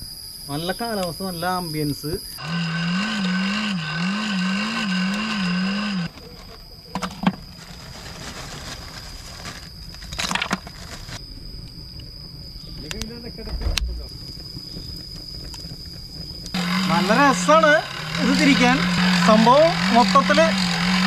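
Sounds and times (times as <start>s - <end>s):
hand-cranked blower whining: 2.4s - 11.2s, 15.4s - 21.0s
charcoal clattering: 5.1s - 11.2s.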